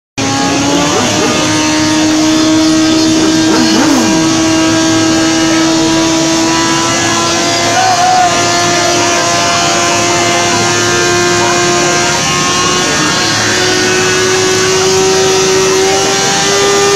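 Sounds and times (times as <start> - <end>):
motorcycle engine blipping: 0.2 - 7.3
motorcycle engine revving high: 0.2 - 16.9.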